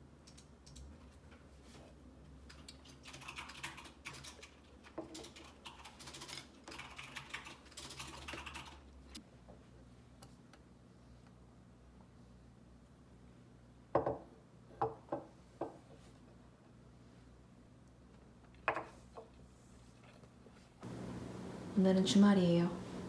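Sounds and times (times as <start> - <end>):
computer keyboard typing: 0.2 - 0.9, 2.5 - 9.0.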